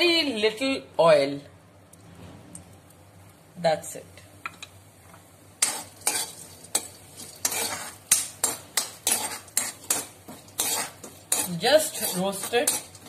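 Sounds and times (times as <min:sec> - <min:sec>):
metal ladle scraping a wok: 0:05.6 - 0:13.0.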